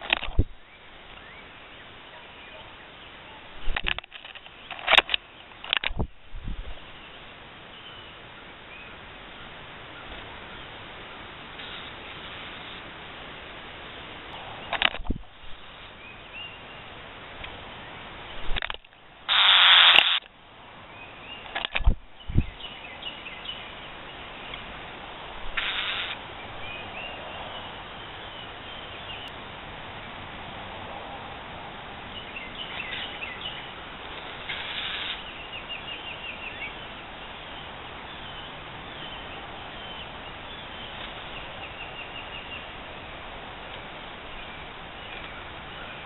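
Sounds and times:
bird harsh squawks: 25.6 - 26.2.

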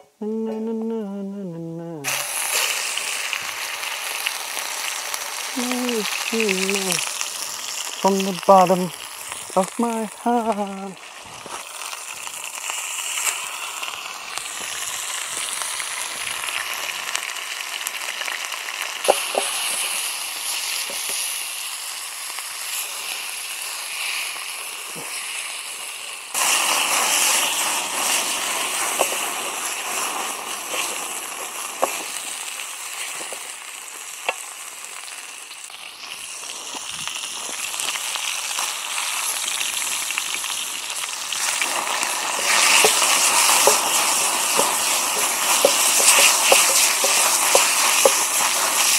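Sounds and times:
meat sizzling in frying pan: 2.0 - 48.9
fat and log popping and crackling: 11.0 - 22.8, 26.3 - 48.9.

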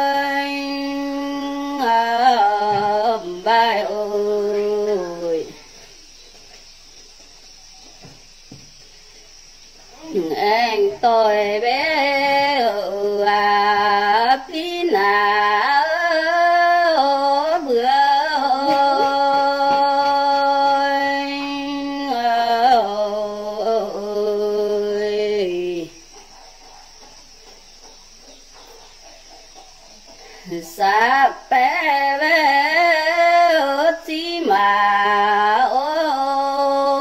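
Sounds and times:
woman singing folk song: 0.0 - 6.0, 10.0 - 26.1, 30.3 - 37.0
faint background noise: 0.0 - 37.0.

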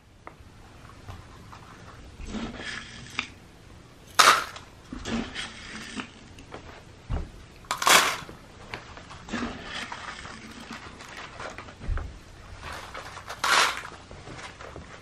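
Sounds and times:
dry cat food rattling into liners: 4.1 - 4.7, 7.7 - 8.3, 12.8 - 14.0
cats crunching dry food: 7.7 - 8.3, 9.3 - 11.7, 12.7 - 14.8.

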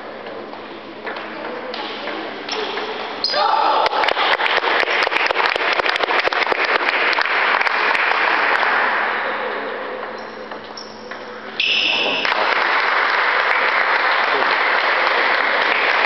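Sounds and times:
spectators applauding: 3.8 - 9.2, 12.0 - 16.0.

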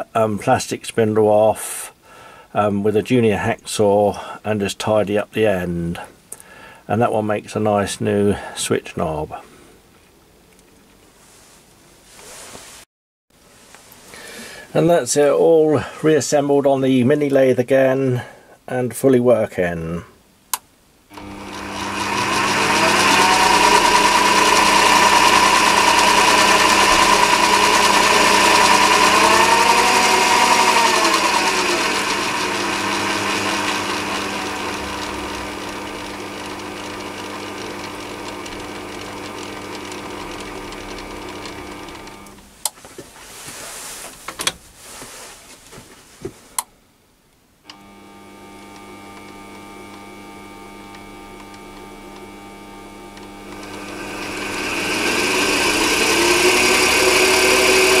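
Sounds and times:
lathe motor whining: 21.1 - 42.5, 47.7 - 58.0.

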